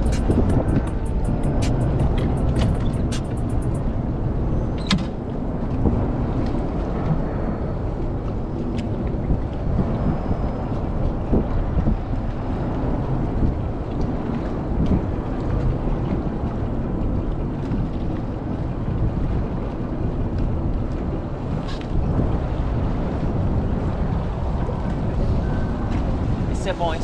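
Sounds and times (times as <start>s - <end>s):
boat engine and water noise: 0.0s - 27.0s
wind on microphone: 0.0s - 27.0s.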